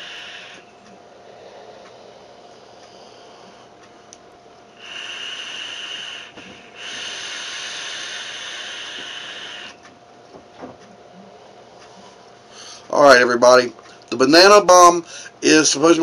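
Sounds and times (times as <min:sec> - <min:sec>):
vapour hissing through atomizer: 0:00.0 - 0:03.8, 0:04.7 - 0:09.8.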